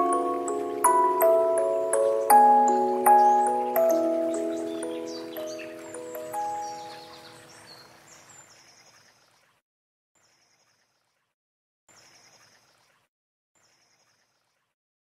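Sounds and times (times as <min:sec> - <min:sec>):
soft chime music: 0:00.0 - 0:07.6.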